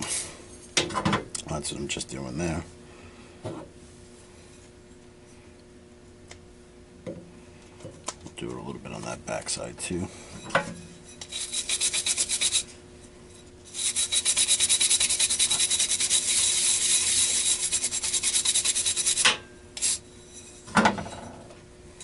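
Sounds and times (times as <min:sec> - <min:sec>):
scrubbing metal by hand: 0:11.2 - 0:12.7, 0:13.7 - 0:20.0.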